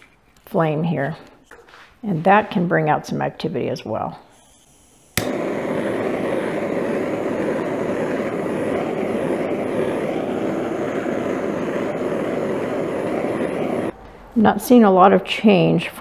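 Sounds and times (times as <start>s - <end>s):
torch flame hissing: 4.2s - 14.0s
kitchen torch clicking alight: 4.3s - 14.0s.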